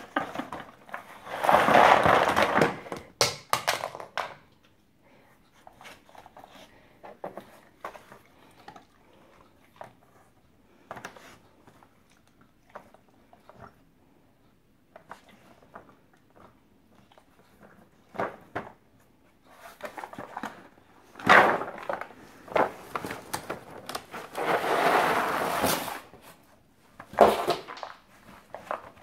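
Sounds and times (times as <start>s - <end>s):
rustling and scraping: 0.0s - 3.0s, 17.0s - 29.0s
rubber toys and cardboard rattling: 0.0s - 4.5s, 19.5s - 26.3s, 27.0s - 29.0s.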